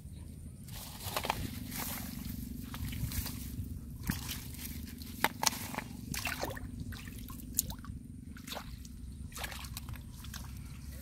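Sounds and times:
hands squelching in mud: 1.0 - 11.0
water splashing and dripping: 4.0 - 10.6.

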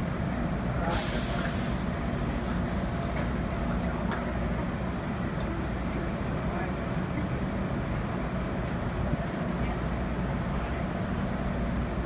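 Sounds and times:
train idling rumble: 0.0 - 12.0
hiss of released air: 0.9 - 1.9.

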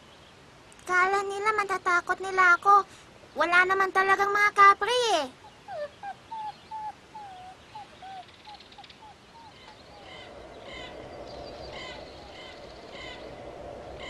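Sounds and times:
steady hiss: 0.0 - 14.0
high bird chirping: 5.4 - 14.0
short falling bird calls: 5.4 - 14.0.

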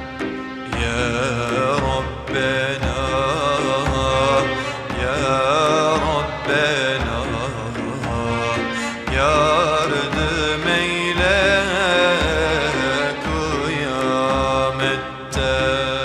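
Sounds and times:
instrumental accompaniment with percussion: 0.0 - 16.0
man singing devotional hymn: 0.6 - 16.0.

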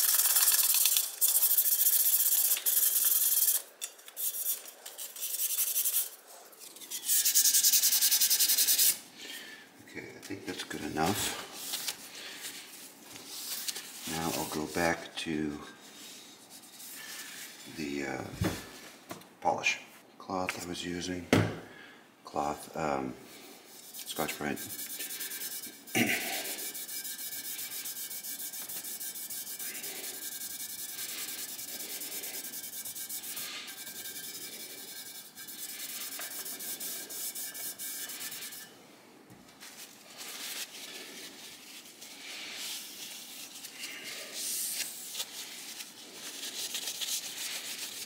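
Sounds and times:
scouring pad rubbing metal rim: 23.8 - 38.7.

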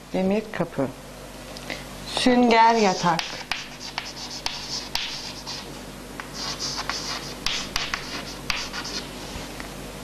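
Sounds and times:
chalk scratching on chalkboard: 2.7 - 9.3
chalk ticking on board: 2.8 - 5.6, 6.2 - 9.0.

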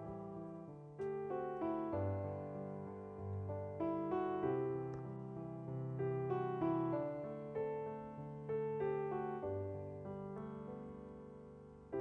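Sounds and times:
slow piano tune: 0.0 - 12.0.

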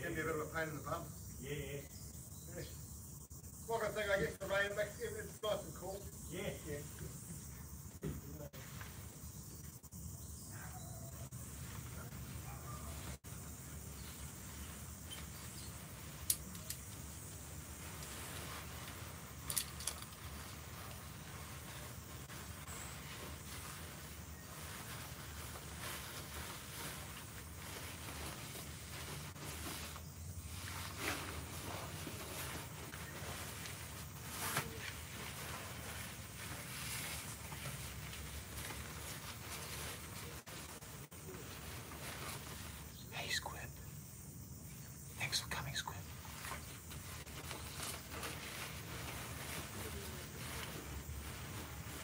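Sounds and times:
camping gear clicks: 16.2 - 17.1, 19.3 - 20.3
jacket fabric rustling: 17.4 - 42.9, 46.3 - 52.0.

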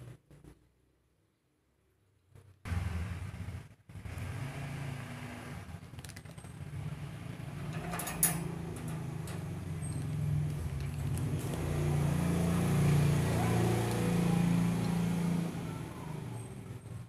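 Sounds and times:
short metallic clink: 7.6 - 10.0.

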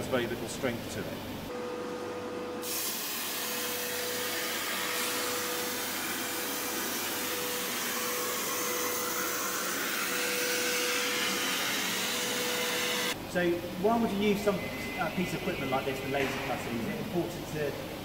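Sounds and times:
plasma arc hissing: 2.6 - 12.1.

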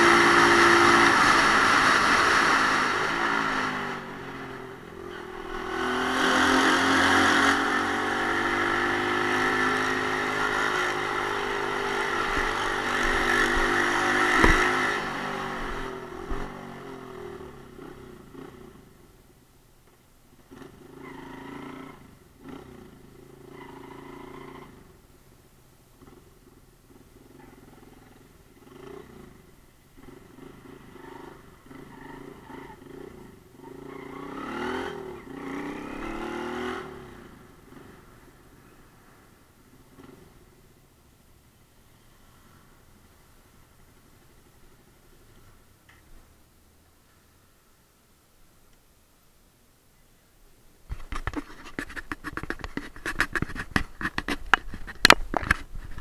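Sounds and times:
motorcycle engine revving: 0.0 - 19.0, 20.4 - 25.0, 26.0 - 40.6
camera handling scratching and clicking: 50.9 - 56.0.

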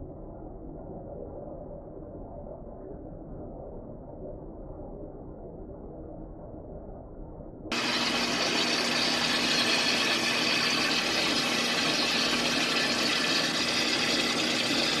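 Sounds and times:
gears meshing and churning: 7.7 - 15.0.

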